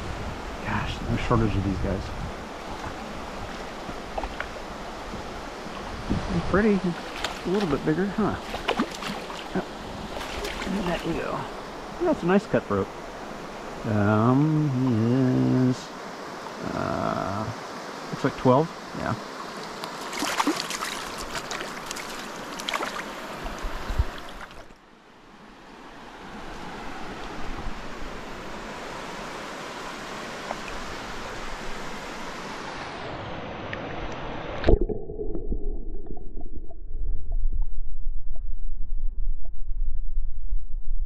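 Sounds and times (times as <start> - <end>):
underwater river rumble: 0.0 - 14.0, 26.3 - 41.0
steady water noise: 0.0 - 40.6
river water splashing: 2.3 - 13.8, 18.8 - 24.9, 25.8 - 34.8.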